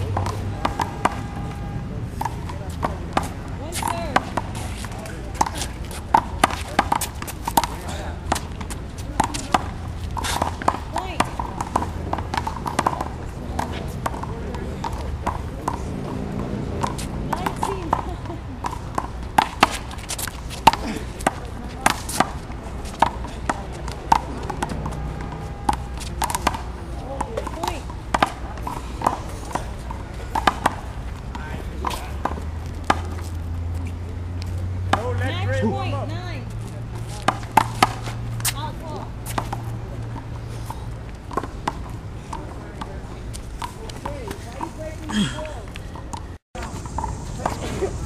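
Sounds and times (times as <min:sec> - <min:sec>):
footsteps on concrete: 0:14.8 - 0:26.4, 0:36.5 - 0:40.3.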